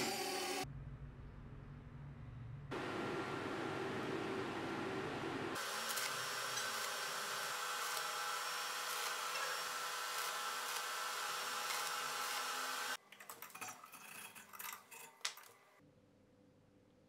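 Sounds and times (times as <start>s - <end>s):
welding arc crackling and hissing: 5.6s - 13.0s.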